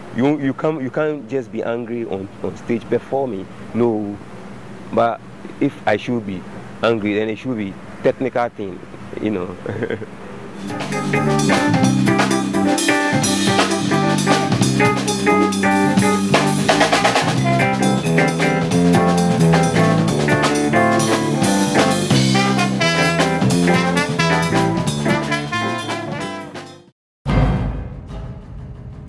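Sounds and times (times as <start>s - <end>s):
jazz band playing: 10.6s - 26.9s
busy drum kit: 10.6s - 29.0s.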